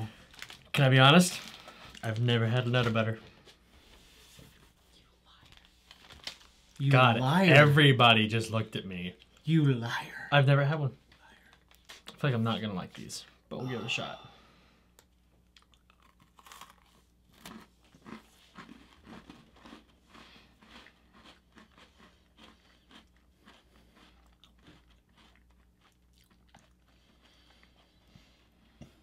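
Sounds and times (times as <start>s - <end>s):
faint cookie crunching and chewing: 0.0s - 9.9s, 10.9s - 13.5s, 14.7s - 29.0s.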